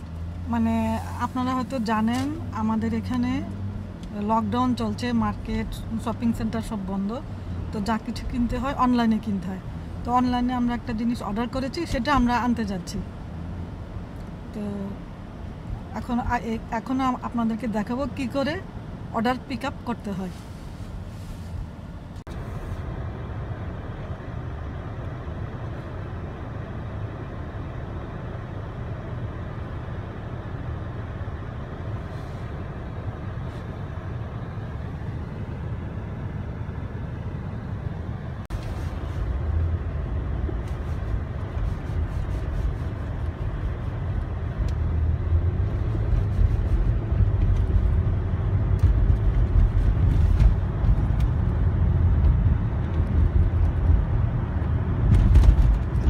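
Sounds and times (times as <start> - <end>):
car road noise inside cabin: 0.0 - 56.0.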